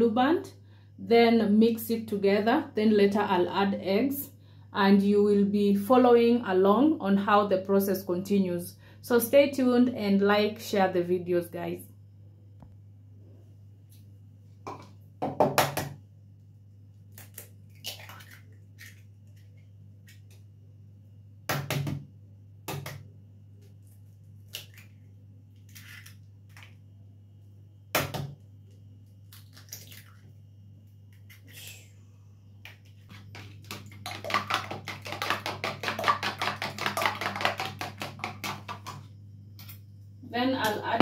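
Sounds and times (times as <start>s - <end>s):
eggs cracking against a bowl: 17.0s - 20.5s, 22.6s - 26.8s, 28.0s - 30.3s, 32.6s - 39.1s.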